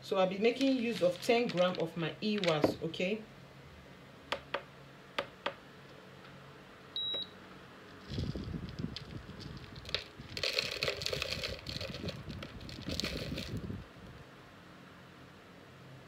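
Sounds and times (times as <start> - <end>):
wax flakes rattling into jug: 0.5 - 2.8, 7.9 - 13.8
short beep: 7.0 - 7.4.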